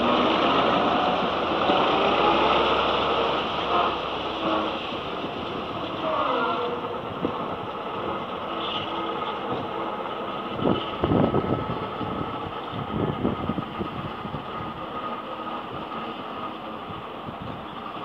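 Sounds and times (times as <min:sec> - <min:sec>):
diesel locomotive running: 0:00.0 - 0:18.0.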